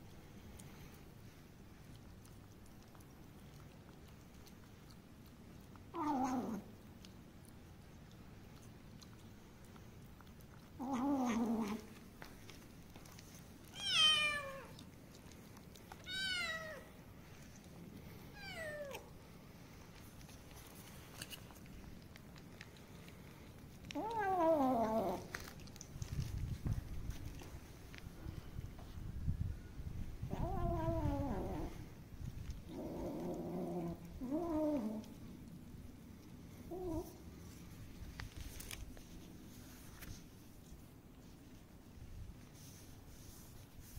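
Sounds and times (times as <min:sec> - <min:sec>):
cats meowing: 0:13.7 - 0:14.8, 0:16.0 - 0:17.0, 0:18.3 - 0:19.1, 0:23.9 - 0:25.3
kittens meowing: 0:13.8 - 0:14.7, 0:16.0 - 0:16.9.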